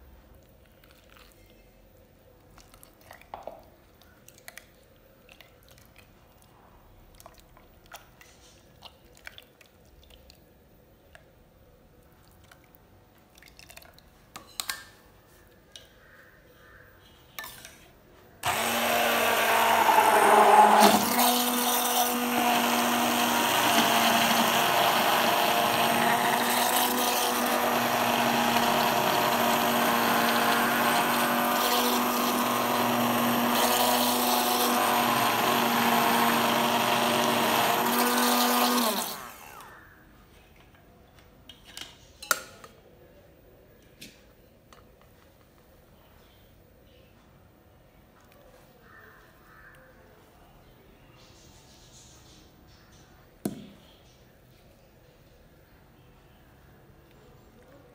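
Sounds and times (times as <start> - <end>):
hand blender motor whining: 18.4 - 39.7.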